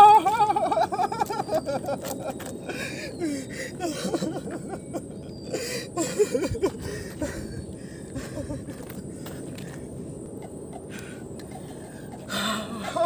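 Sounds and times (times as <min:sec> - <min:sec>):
man chuckling and muttering: 0:00.0 - 0:09.6, 0:10.3 - 0:13.0.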